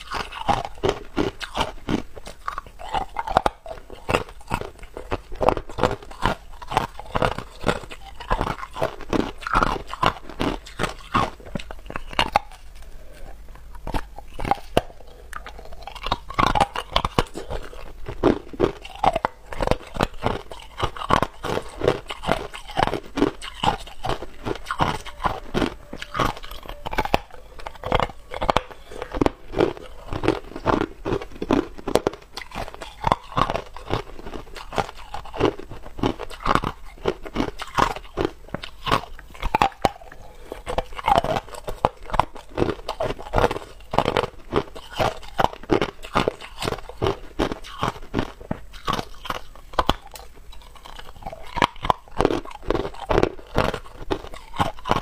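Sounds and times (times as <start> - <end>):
ice being chewed: 0.0 - 55.0.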